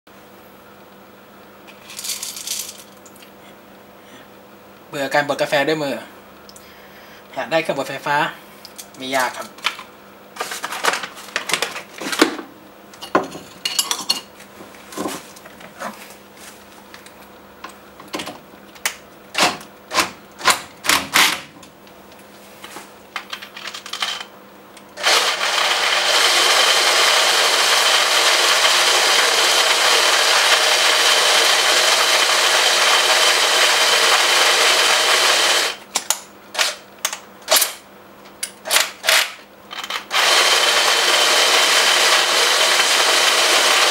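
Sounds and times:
power drill whirring: 25.0s - 35.8s, 39.7s - 43.9s.

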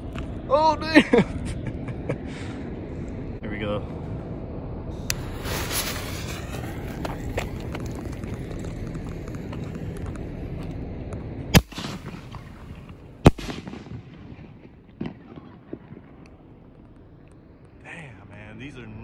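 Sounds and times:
firework fuse hissing: 5.0s - 10.6s.

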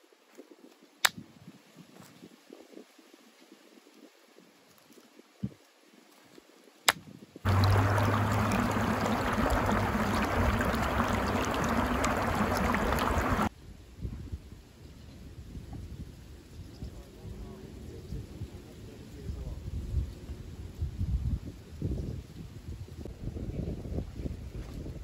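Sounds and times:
steady low hum: 7.5s - 13.5s
water gushing from pipe: 7.5s - 13.5s.

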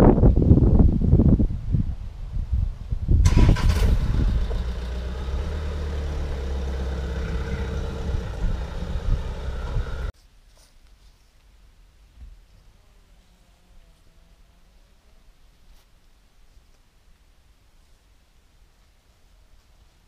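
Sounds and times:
wind on microphone: 0.0s - 4.5s, 7.6s - 10.1s
car engine starting and idling: 3.2s - 10.1s.

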